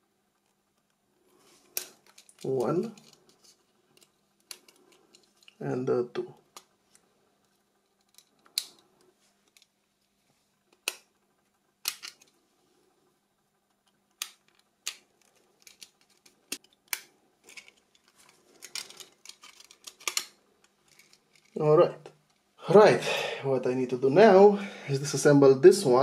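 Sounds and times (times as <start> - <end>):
faint steady hum: 0.0 - 26.0
clicks of phone parts handled: 11.8 - 12.3, 13.8 - 20.3.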